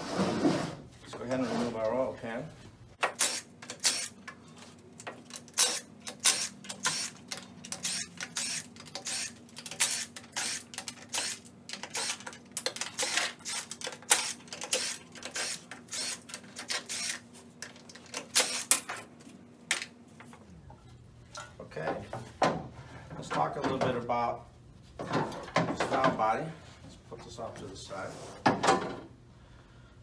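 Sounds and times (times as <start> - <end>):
cordless power driver bursts: 3.0 - 4.2, 5.6 - 12.2, 13.0 - 17.2, 18.3 - 18.7.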